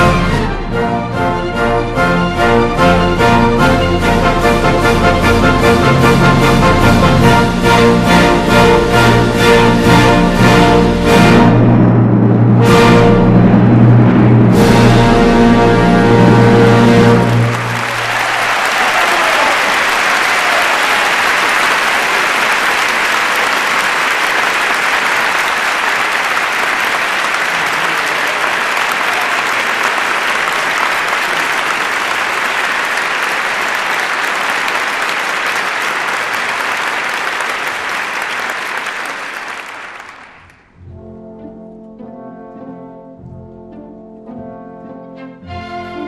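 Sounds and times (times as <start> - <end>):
orchestra loud chord: 0.0 - 18.0, 40.8 - 46.0
audience applauding: 16.0 - 40.8.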